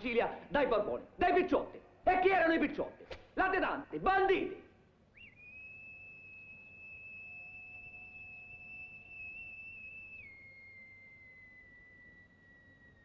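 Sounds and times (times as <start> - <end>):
high whistle-like tone: 5.1 - 13.0.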